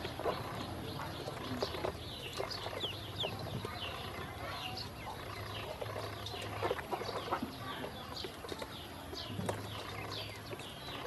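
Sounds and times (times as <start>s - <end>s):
ducklings peeping: 0.0s - 11.0s.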